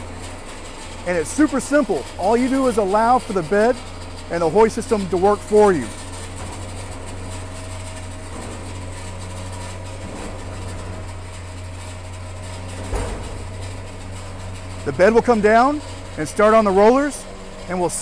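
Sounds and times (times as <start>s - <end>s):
electric hoist winch humming: 0.0s - 18.0s.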